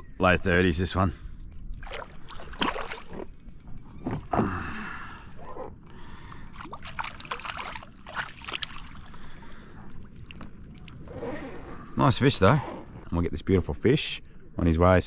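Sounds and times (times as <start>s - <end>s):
fish splashing in water: 6.5s - 9.3s.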